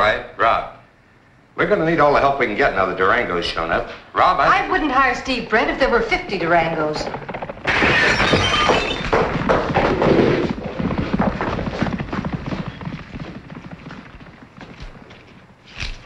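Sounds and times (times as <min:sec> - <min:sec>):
loud crash with clattering: 0:07.1 - 0:10.6
shuffling footsteps: 0:09.0 - 0:16.0.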